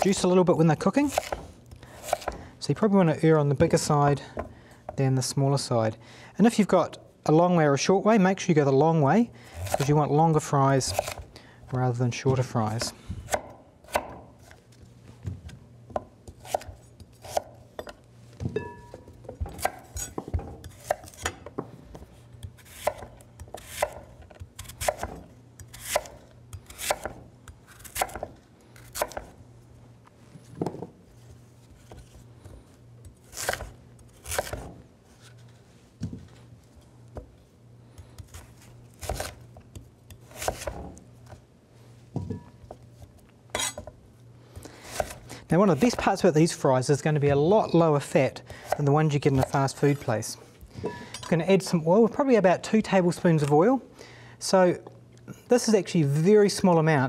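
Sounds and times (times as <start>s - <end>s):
knife chopping on wooden board: 1.1s - 2.4s, 13.3s - 14.6s, 15.9s - 17.9s, 22.6s - 26.2s, 26.8s - 27.2s, 27.8s - 28.3s, 28.9s - 29.3s, 40.2s - 41.0s, 44.9s - 45.2s.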